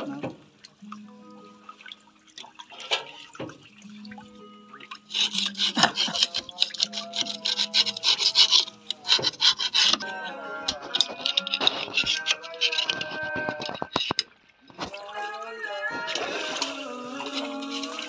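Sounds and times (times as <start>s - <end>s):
background music: 0.0s - 18.0s
metal rod scraping grease: 5.0s - 14.2s, 15.8s - 18.0s.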